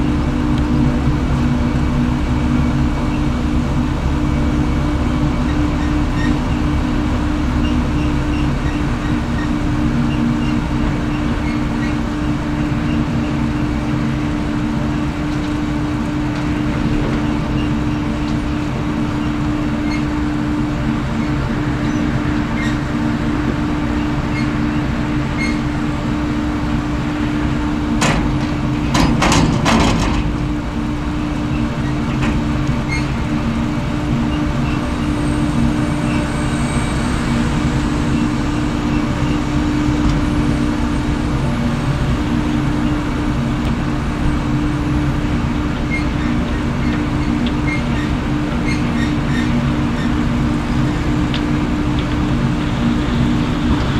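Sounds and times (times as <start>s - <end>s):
tractor diesel engine running: 0.0s - 53.9s
sharp knocks: 28.0s - 30.4s.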